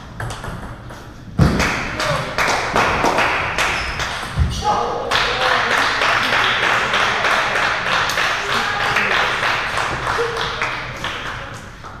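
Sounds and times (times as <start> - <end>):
ping-pong balls tapping: 0.0 - 1.5.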